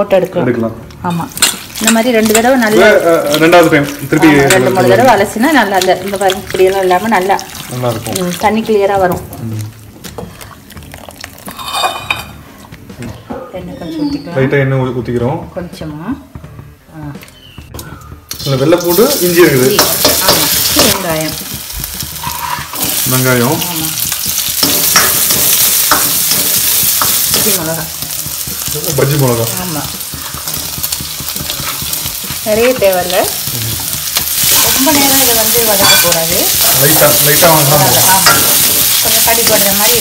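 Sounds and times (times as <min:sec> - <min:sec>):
vegetables sizzling in hot oil: 0:00.0 - 0:12.4, 0:18.3 - 0:40.0
ladle scraping a wok: 0:11.5 - 0:12.3, 0:22.1 - 0:23.1, 0:30.0 - 0:32.4.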